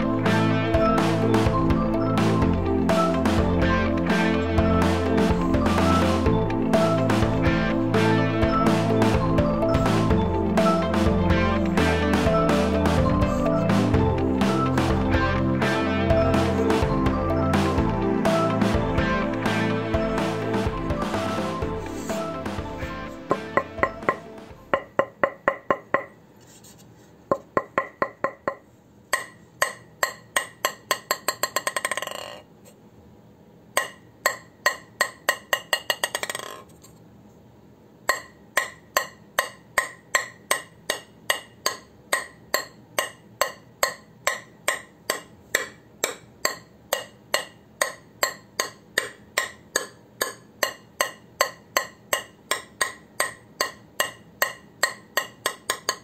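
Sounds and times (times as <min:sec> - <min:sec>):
ping pong ball bouncing on paddle: 0:23.3 - 0:26.2, 0:27.3 - 0:32.4, 0:33.8 - 0:36.6, 0:38.1 - 0:56.0.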